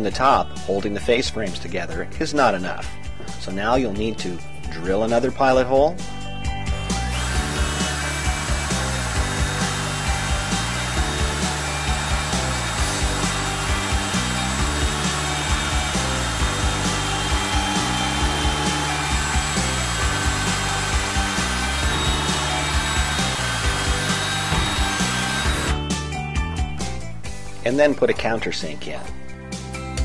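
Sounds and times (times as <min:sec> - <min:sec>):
background music with bass line: 0:00.0 - 0:30.0
cordless drill boring into wood: 0:07.0 - 0:25.8.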